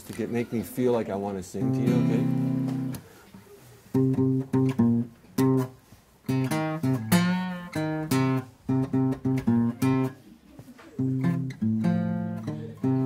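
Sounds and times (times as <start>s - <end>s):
acoustic guitar blues riff: 1.5s - 3.2s, 3.8s - 10.2s, 11.0s - 13.0s.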